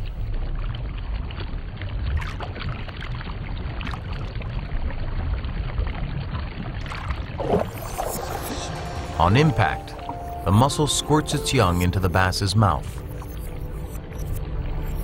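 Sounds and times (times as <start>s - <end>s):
underwater rumble of moving water: 0.0s - 11.4s.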